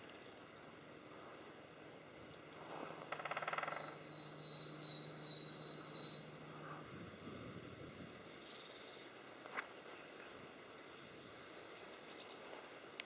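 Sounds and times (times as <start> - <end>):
low steady hum: 0.0 - 13.0
woodpecker drumming: 3.0 - 6.3
whistled bird notes: 3.5 - 6.4.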